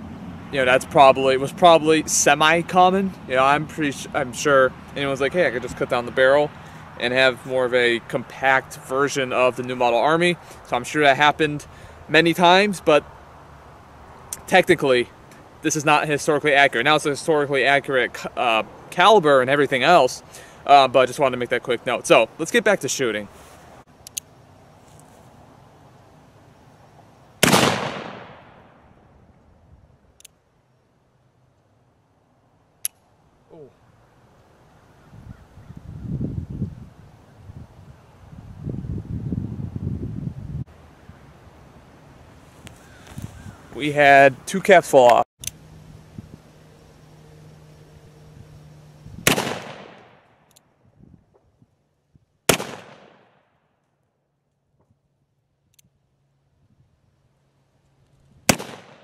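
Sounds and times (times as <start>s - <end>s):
revolver gunshot: 27.4s - 28.8s, 49.2s - 50.2s, 52.5s - 53.4s, 58.5s - 59.0s.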